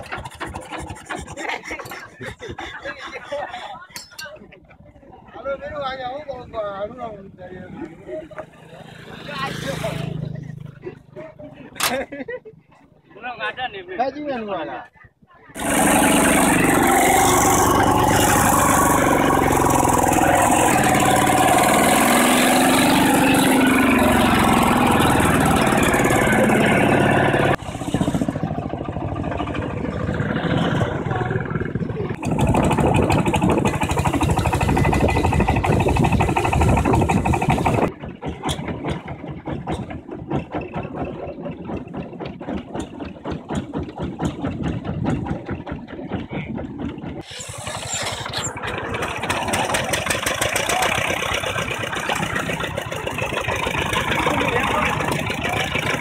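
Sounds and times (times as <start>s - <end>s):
diesel engine running loud: 15.6s - 56.0s
quieter engine putting: 15.6s - 56.0s.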